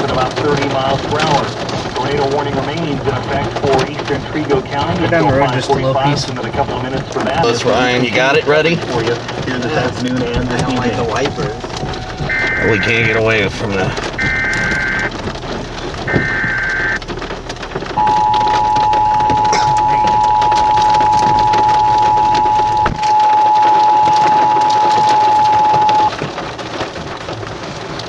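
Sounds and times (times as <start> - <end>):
rain noise: 0.0 - 28.0
road noise: 0.0 - 28.0
data bursts of high tones: 10.6 - 13.2, 14.2 - 15.1, 16.1 - 17.0, 18.0 - 26.1
two-tone attention signal beep: 10.7 - 13.1, 14.2 - 15.1, 18.0 - 26.1.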